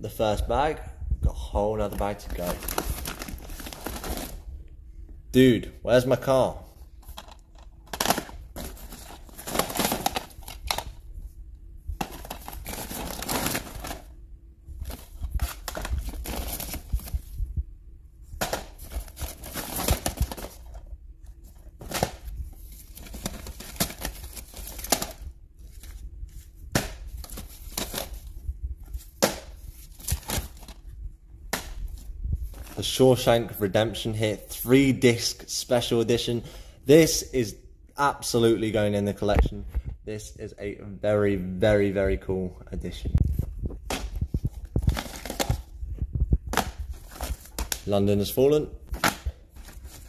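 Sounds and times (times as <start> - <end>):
plastic bag rustling: 1.8 - 4.5, 7.0 - 11.0, 12.0 - 14.2, 18.4 - 20.8, 21.4 - 30.9, 48.9 - 50.0
plastic cases clacking: 7.0 - 11.0, 12.0 - 14.1, 18.4 - 20.8.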